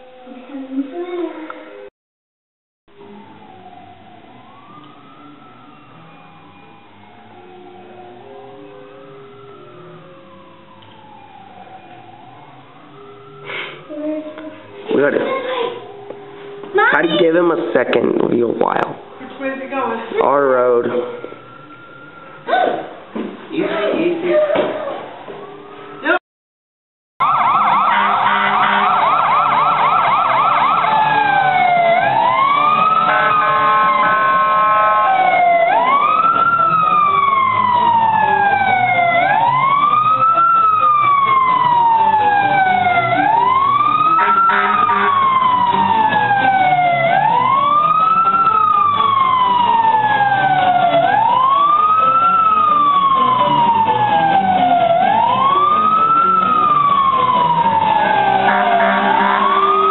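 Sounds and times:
fire truck siren: 2.9 - 26.2, 27.2 - 59.9
horn blast: 27.2 - 31.4, 32.0 - 38.6, 41.8 - 46.4, 56.3 - 59.9.

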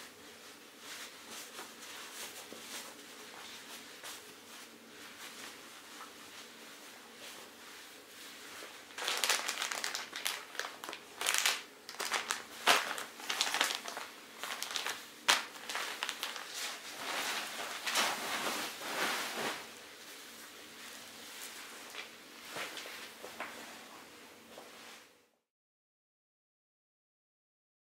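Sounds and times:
plastic bag crinkling: 8.7 - 19.7.

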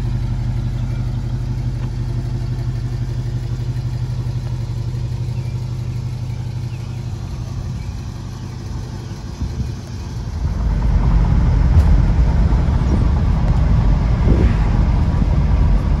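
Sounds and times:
car engine running: 0.0 - 16.0.

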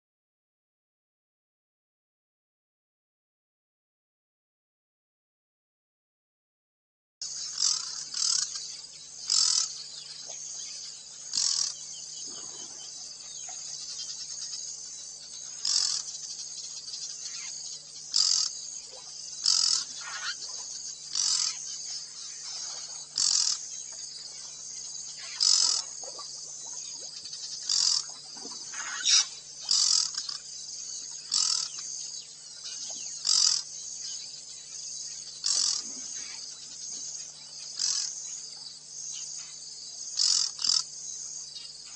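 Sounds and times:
insects chirring: 7.2 - 41.9
loud insect chirp: 7.2 - 41.9
faint low hum: 7.3 - 40.2.

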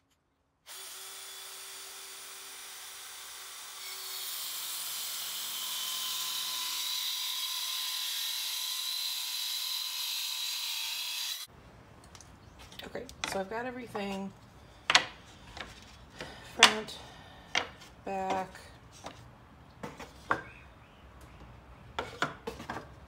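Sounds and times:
circular saw cutting plywood: 0.7 - 11.5.

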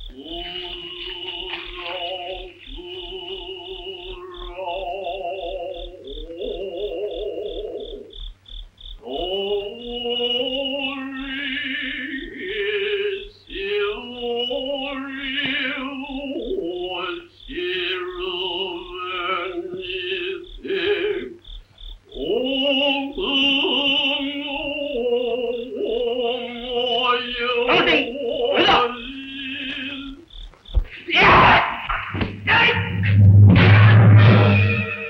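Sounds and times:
steady ticking pulse: 0.0 - 30.9, 32.4 - 35.0.

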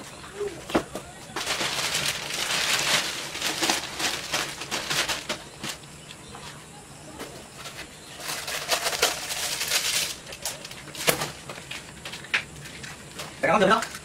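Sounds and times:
plastic wrapping crinkling: 1.3 - 6.0, 7.6 - 14.0.

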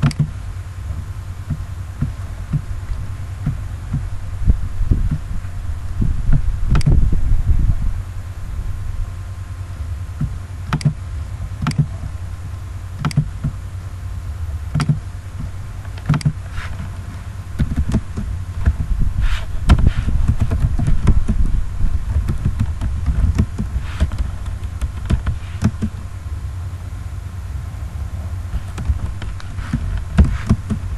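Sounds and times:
steady low hum: 0.0 - 30.9
keyboard typing: 17.6 - 18.9, 20.2 - 21.5, 22.1 - 26.0, 28.7 - 30.9.

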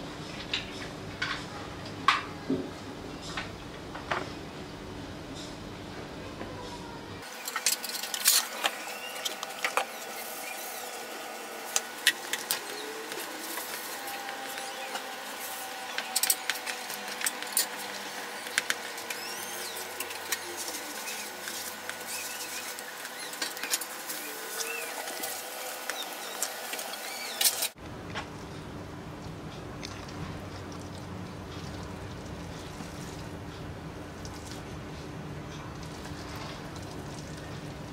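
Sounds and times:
simmering mixture hissing: 7.2 - 27.8.

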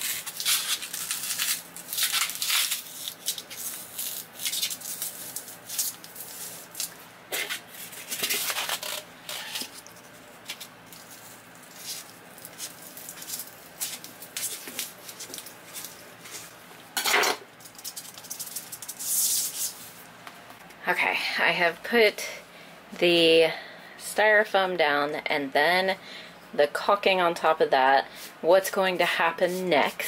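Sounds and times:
styrofoam scraping and crackling: 0.0 - 16.5, 17.8 - 19.8.

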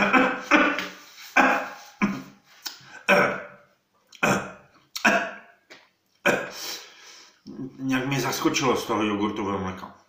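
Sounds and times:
man coughing: 0.0 - 3.6, 4.2 - 5.4, 6.2 - 6.8.

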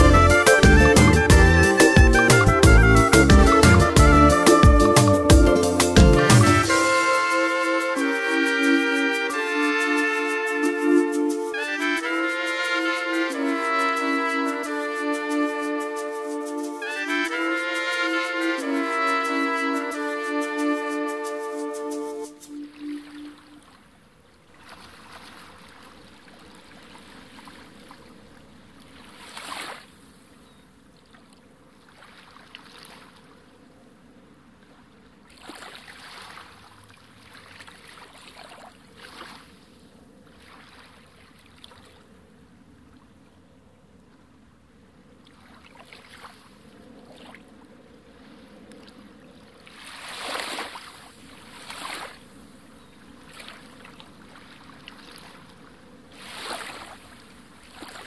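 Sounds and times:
waves lapping against pier: 11.3 - 58.0
water splashes: 19.9 - 30.3, 31.0 - 33.6, 34.6 - 43.1, 45.2 - 58.0.

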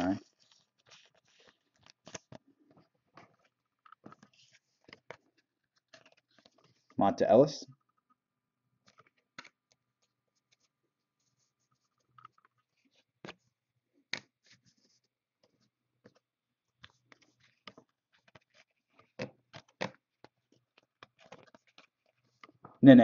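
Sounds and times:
trading cards clicking and sliding: 16.8 - 22.6.

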